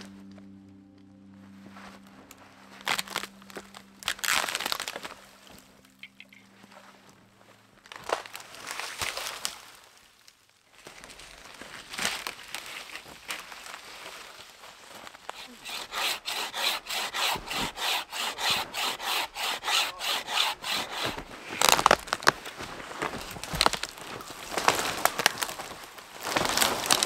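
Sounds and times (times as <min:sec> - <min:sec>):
footsteps crunching in snow: 0:01.5 - 0:10.0, 0:10.8 - 0:27.0
hand saw cutting wood: 0:15.3 - 0:22.3.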